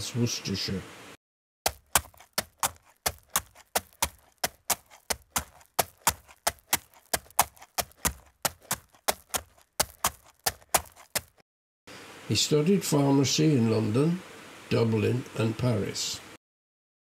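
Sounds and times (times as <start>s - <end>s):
horse hooves clip-clopping on road: 1.7s - 11.4s.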